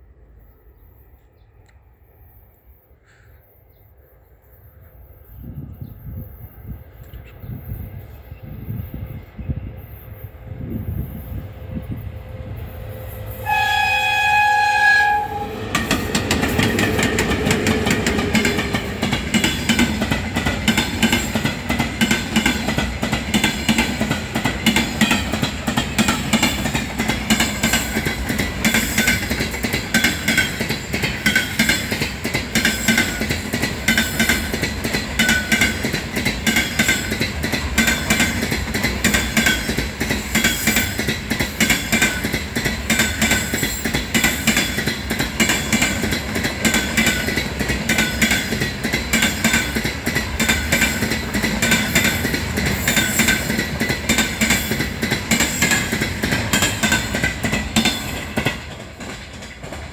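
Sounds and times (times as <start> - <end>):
locomotive horn blast: 13.3 - 15.8
train wheels clattering over rail joints: 15.6 - 59.9.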